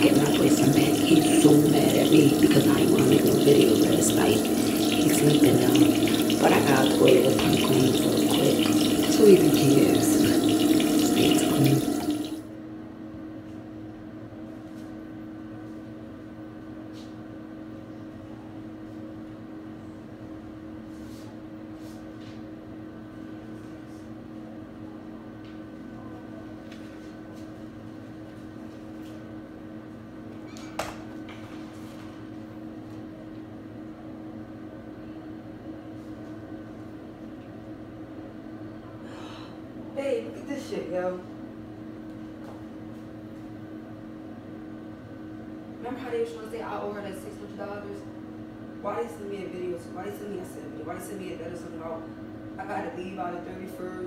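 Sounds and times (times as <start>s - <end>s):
tap running into sink: 0.0s - 12.4s
low electrical hum: 0.0s - 54.0s.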